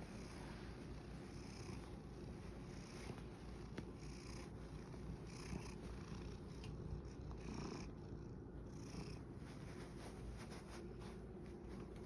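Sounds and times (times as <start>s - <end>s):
cat purring: 0.0s - 12.0s.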